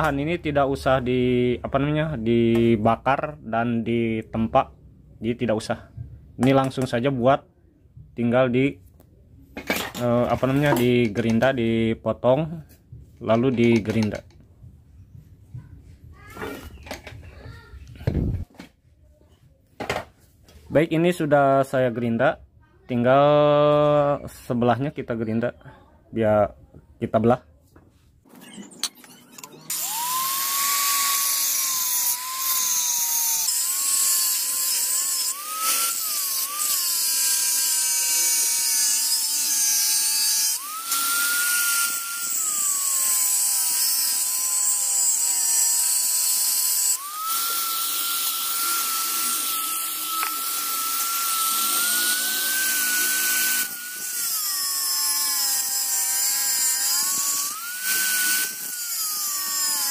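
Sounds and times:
power grinder grinding steel: 28.4s - 59.9s.

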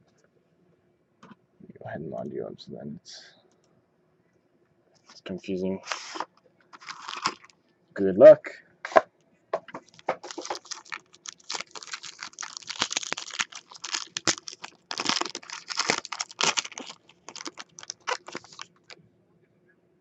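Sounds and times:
foil pack tearing and crinkling: 5.9s - 7.5s, 9.9s - 19.0s.

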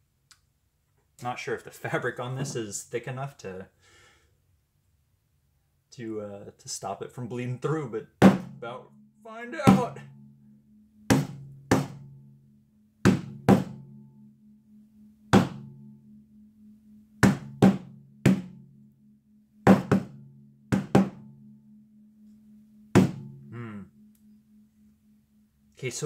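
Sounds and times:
hammer knocking on canvas: 8.2s - 8.5s, 11.1s - 12.0s, 13.1s - 13.7s, 15.4s - 15.6s, 17.2s - 18.5s, 19.7s - 20.1s, 20.7s - 21.2s, 23.0s - 23.2s.

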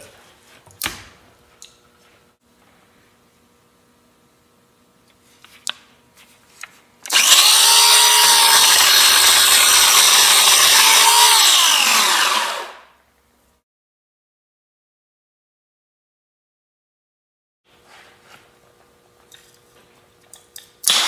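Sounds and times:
electric chainsaw cutting wood: 7.1s - 13.0s.

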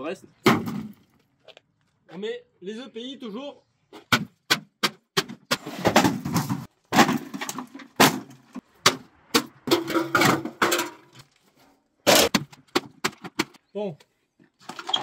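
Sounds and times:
metal bangs and crunches: 5.2s - 11.4s
metal panels clattering and scraping: 5.5s - 8.6s, 9.4s - 13.6s.

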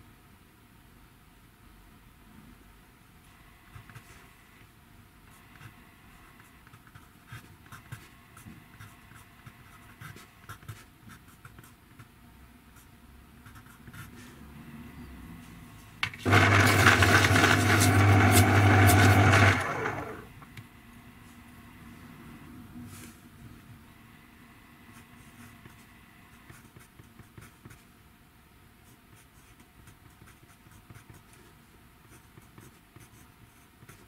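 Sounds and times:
pencil scratching on paper: 5.3s - 11.8s, 13.4s - 14.4s, 16.2s - 20.0s
small electric motor grinding: 16.2s - 20.3s.

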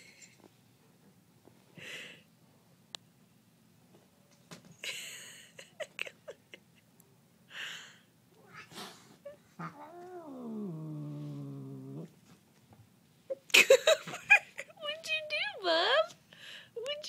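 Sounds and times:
cat yowling: 8.4s - 12.1s
cat hissing: 8.4s - 12.2s.

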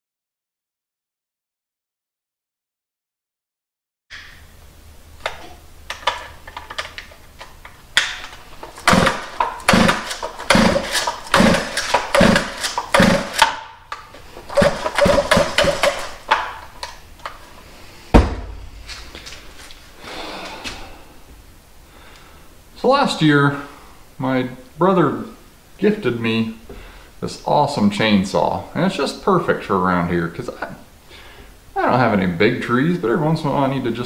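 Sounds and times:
starter rope rasping: 8.8s - 13.5s, 14.5s - 16.2s
chainsaw thump on workbench: 18.1s - 18.7s.

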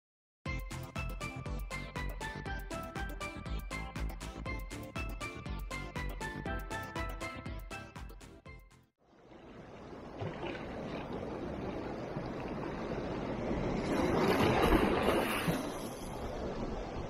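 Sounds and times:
waves breaking against rocks: 9.4s - 17.0s.

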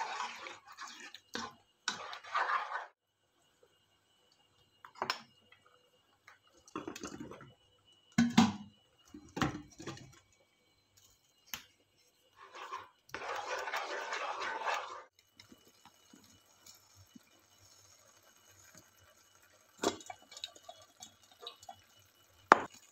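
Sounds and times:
scrapes and knocks in a pan: 0.0s - 3.0s, 12.4s - 15.1s.

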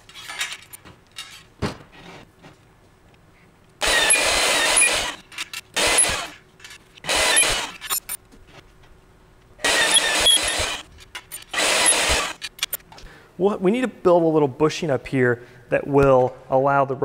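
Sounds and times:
drill press drilling into steel: 3.8s - 5.2s, 5.8s - 6.4s, 7.0s - 8.0s, 9.6s - 12.4s.

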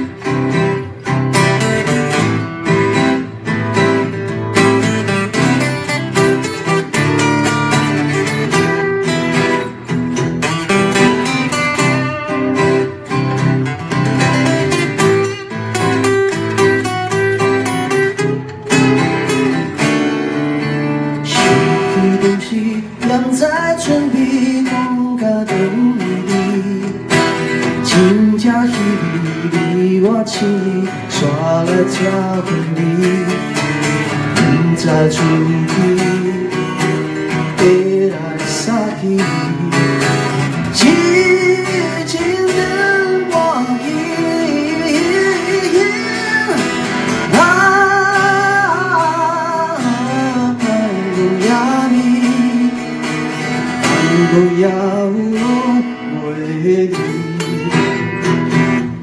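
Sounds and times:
acoustic guitars strummed: 0.0s - 59.0s
person singing: 21.0s - 59.0s.

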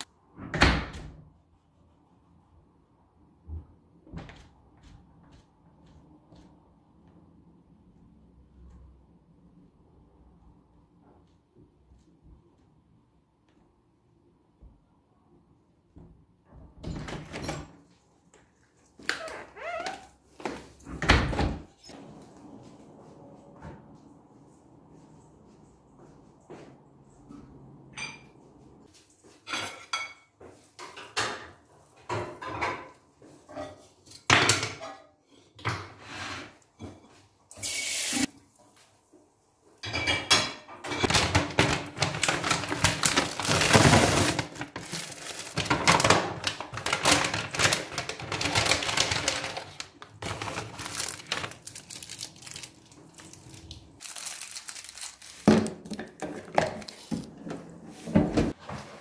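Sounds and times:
dishes and cutlery clinking: 28.0s - 28.4s, 29.3s - 35.6s, 39.8s - 41.2s.

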